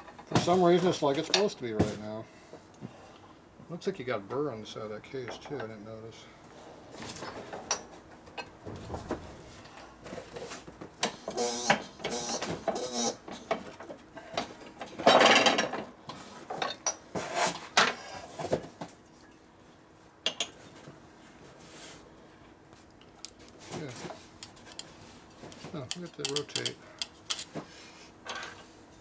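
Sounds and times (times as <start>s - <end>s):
tools scraping on metal: 24.1s - 27.6s
metal parts clicking and knocking: 24.4s - 27.5s.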